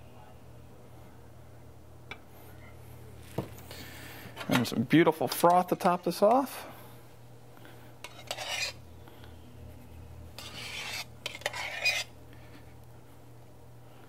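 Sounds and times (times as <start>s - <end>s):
metal pitcher scraping: 8.1s - 8.8s, 10.4s - 12.1s.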